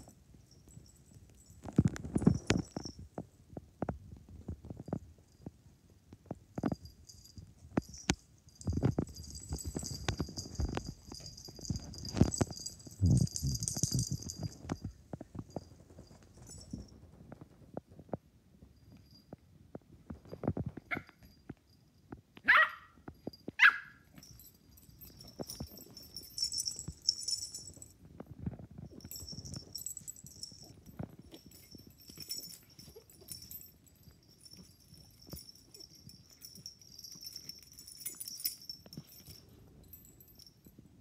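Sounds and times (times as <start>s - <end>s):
collar tags jingling: 0.0s - 3.3s, 4.4s - 17.6s, 20.0s - 41.0s
dog barking: 22.5s - 22.9s, 23.6s - 24.0s.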